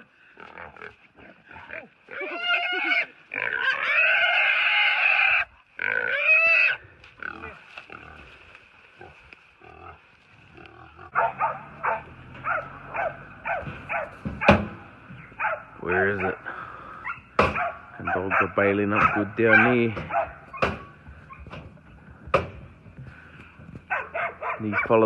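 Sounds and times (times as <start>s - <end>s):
pig squealing: 0.6s - 8.2s, 10.6s - 21.5s.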